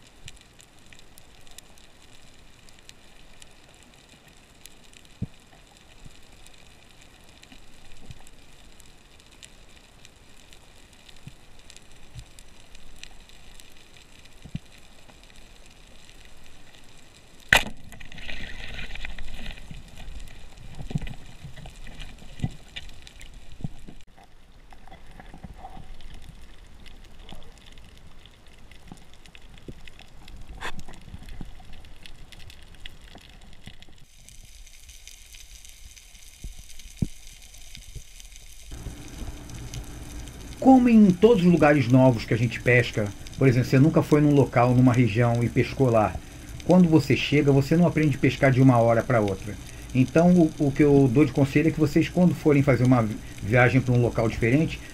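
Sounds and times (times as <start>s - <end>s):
faint crackle of small clicks: 0.0s - 54.9s
speargun crack underwater: 17.5s - 19.5s
hiss and rattle: 30.4s - 54.9s.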